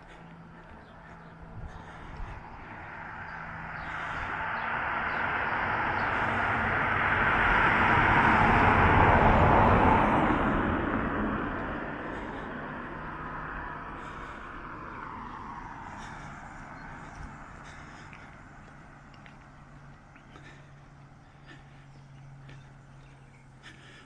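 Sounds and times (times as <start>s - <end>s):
vehicle driving past: 0.0s - 24.0s.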